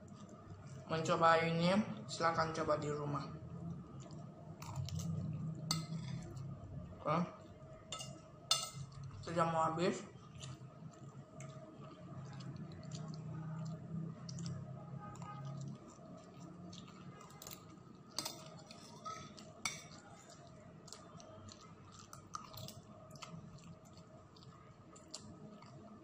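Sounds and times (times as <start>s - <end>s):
low steady hum: 0.0s - 26.0s
cutlery clinking on glass bowl: 4.6s - 6.3s, 7.9s - 9.0s, 17.3s - 20.0s.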